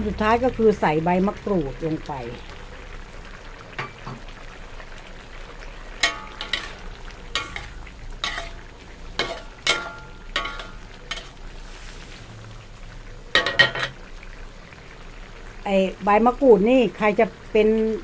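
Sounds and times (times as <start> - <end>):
curry simmering: 0.0 - 18.0
metal spatula scraping a wok: 6.0 - 12.4.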